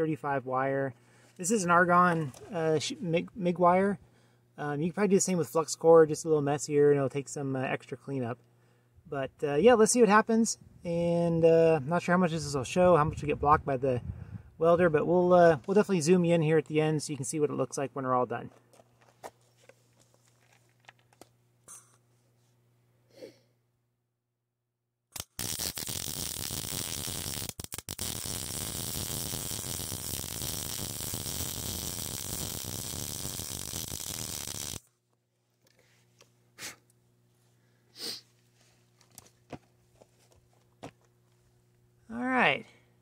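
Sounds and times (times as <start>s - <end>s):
welder arc crackling: 25.2s - 34.8s.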